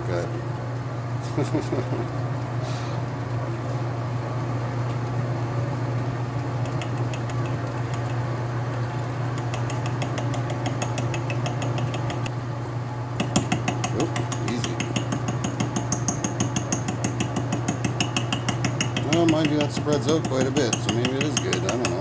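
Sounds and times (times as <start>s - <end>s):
lathe humming: 13.2s - 22.0s.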